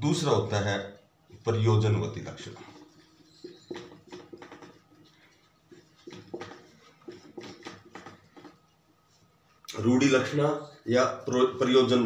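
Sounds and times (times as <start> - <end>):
marker scratching on whiteboard: 2.3 - 9.4.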